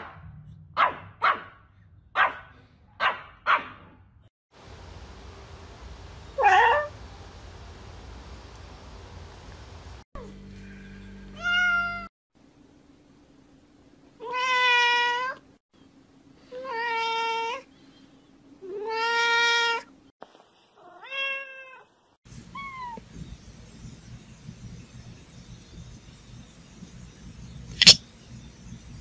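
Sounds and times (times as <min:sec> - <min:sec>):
cats meowing: 0:18.6 - 0:19.9.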